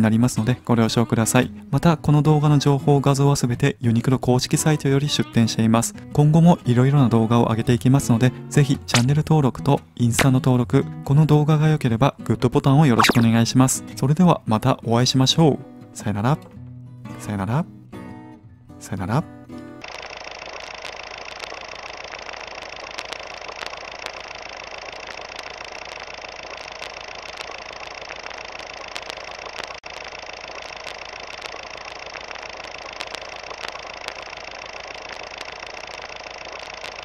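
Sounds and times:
clicks and crackles: 0:19.8 - 0:37.0
film projector whirring hum: 0:19.8 - 0:37.0.

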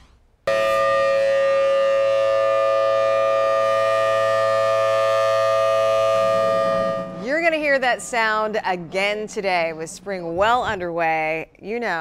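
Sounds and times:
tornado warning siren: 0:00.5 - 0:10.0.

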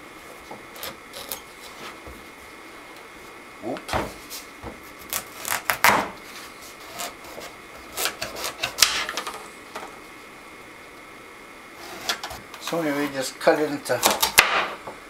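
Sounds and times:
knife cutting squash: 0:06.8 - 0:08.9, 0:13.9 - 0:14.5.

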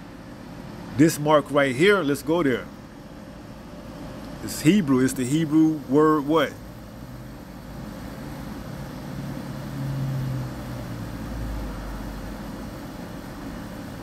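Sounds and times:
low background rumble and hum: 0:00.0 - 0:14.0.

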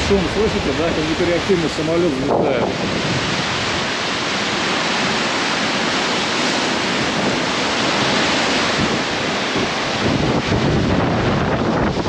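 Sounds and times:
hurricane wind rushing: 0:00.0 - 0:12.0.

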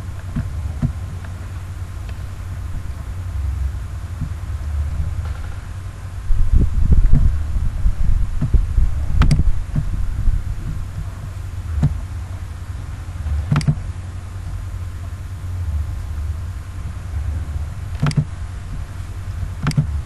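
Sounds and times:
low rumble: 0:00.0 - 0:20.0
dull thumps: 0:11.7 - 0:12.1.

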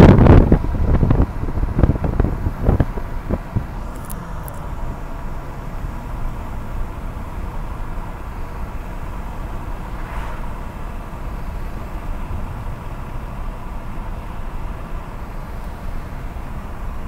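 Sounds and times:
car road noise from inside: 0:00.0 - 0:17.0.

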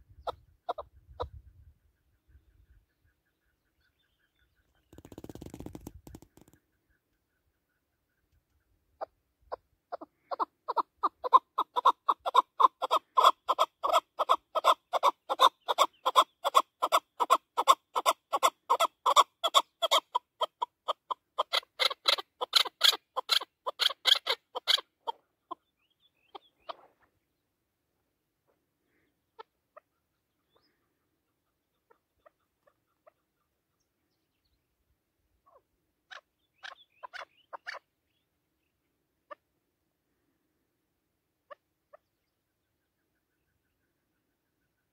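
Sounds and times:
partridge clucking calls: 0:00.1 - 0:01.7, 0:02.6 - 0:26.9, 0:29.4 - 0:33.6, 0:35.5 - 0:37.9.

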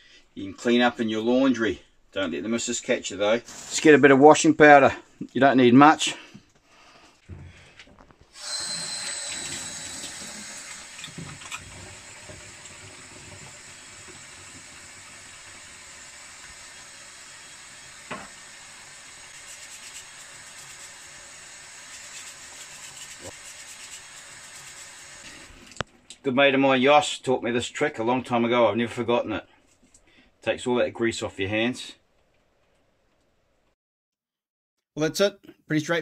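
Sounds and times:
water running into steel sink: 0:08.4 - 0:25.8
hands scrubbing and rinsing: 0:09.2 - 0:15.6, 0:19.3 - 0:21.0, 0:21.9 - 0:24.9.

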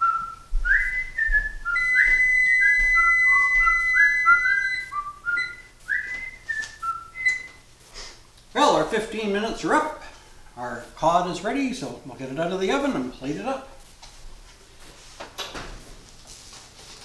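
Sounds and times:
person whistling a tune: 0:00.0 - 0:07.6.

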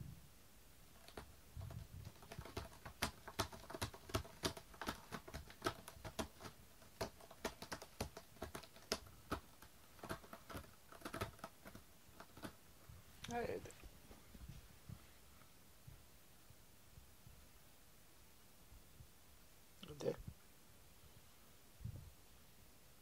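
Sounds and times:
cat scratching cardboard: 0:00.9 - 0:12.6.

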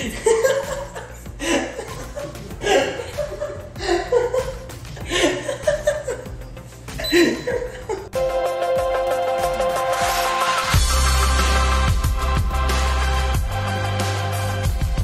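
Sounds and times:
person laughing: 0:00.0 - 0:08.2
faint background music: 0:00.0 - 0:15.0
electronic dance music: 0:08.2 - 0:15.0.

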